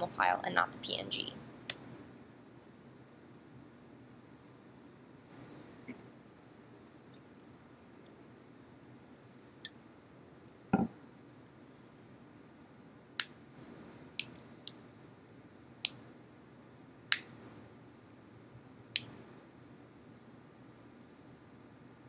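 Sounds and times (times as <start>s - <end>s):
faint room hiss: 0.0s - 22.0s.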